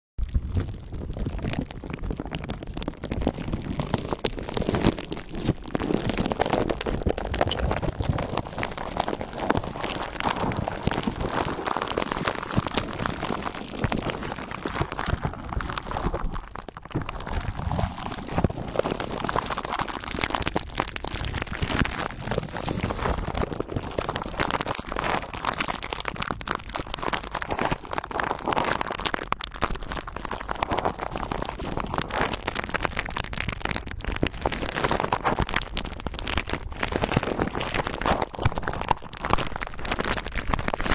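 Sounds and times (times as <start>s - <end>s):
plastic wrap crinkling: 0.2s - 40.9s.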